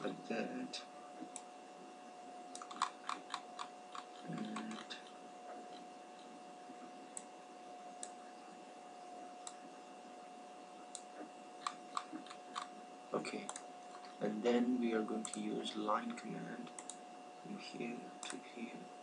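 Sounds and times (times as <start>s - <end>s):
faint steady hum: 0.0s - 19.0s
computer mouse clicking: 1.2s - 1.5s, 2.5s - 6.3s, 10.9s - 12.7s, 13.4s - 14.2s, 15.2s - 17.0s, 18.2s - 18.4s.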